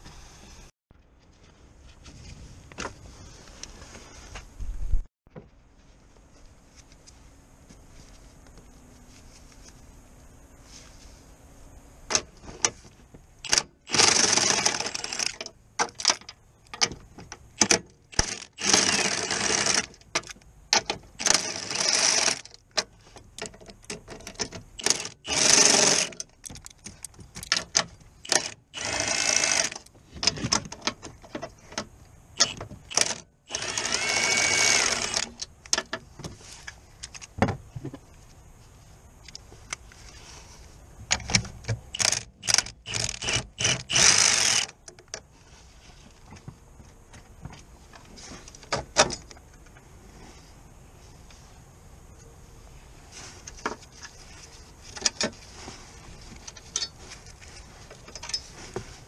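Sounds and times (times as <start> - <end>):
powered ratchet whining: 13.4 - 15.4, 18.1 - 19.9, 24.8 - 26.2, 28.2 - 29.8, 32.4 - 35.4, 42.0 - 44.8
metal clicks and knocks of tools: 56.4 - 58.5.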